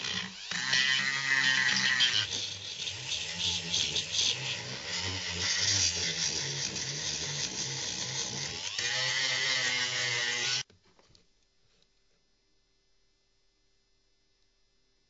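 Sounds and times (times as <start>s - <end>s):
rotary tool grinding whine: 0.0s - 10.7s.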